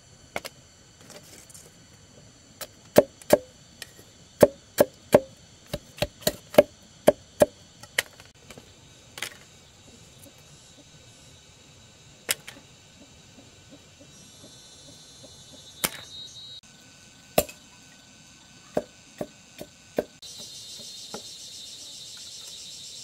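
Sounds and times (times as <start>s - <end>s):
sharp chopping: 2.9s - 3.5s.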